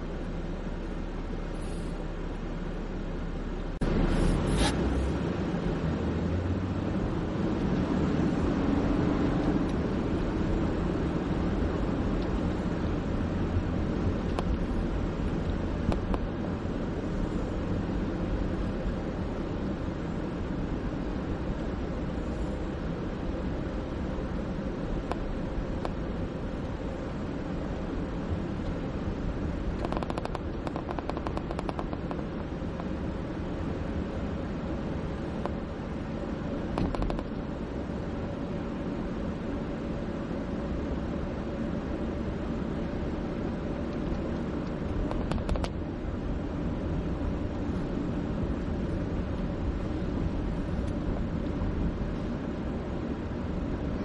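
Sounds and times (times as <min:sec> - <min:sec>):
car road and engine noise: 0:00.0 - 0:54.0
sharp clicks or rattles: 0:29.8 - 0:32.2, 0:36.8 - 0:37.3.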